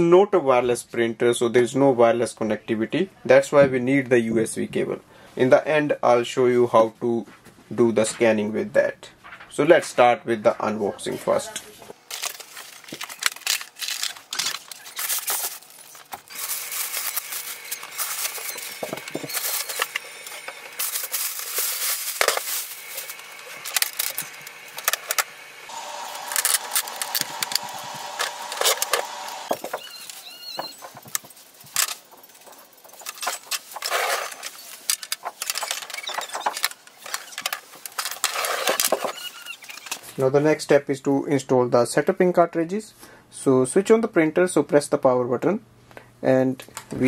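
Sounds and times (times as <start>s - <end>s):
packing material crinkling: 12.0s - 40.2s.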